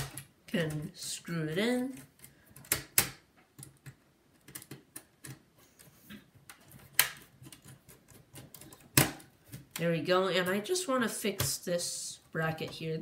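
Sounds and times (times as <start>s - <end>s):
sharp plastic clicks: 1.9s - 5.4s, 6.5s - 9.8s.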